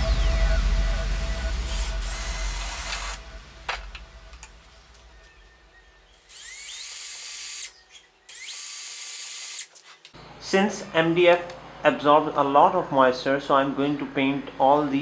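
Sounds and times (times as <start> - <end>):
cordless drill whining: 6.2 - 9.7.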